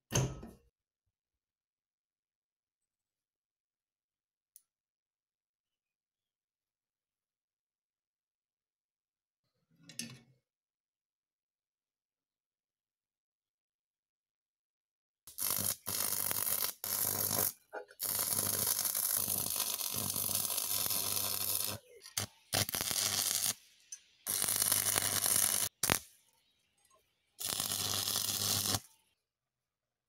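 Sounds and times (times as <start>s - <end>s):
welding arc crackling and sizzling: 15.3s - 26.1s, 27.4s - 29.0s.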